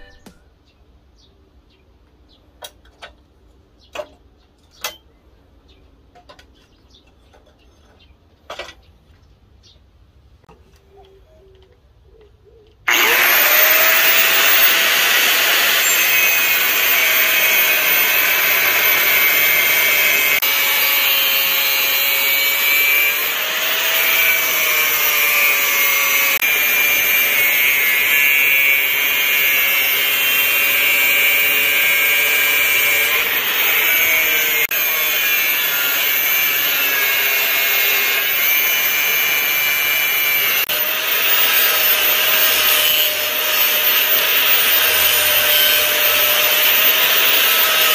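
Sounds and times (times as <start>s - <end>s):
angle grinder cutting steel: 12.9s - 47.9s.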